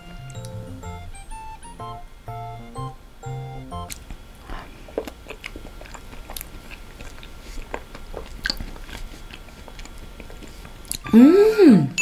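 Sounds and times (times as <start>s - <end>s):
mouth sounds eating ice cream: 3.9s - 12.0s.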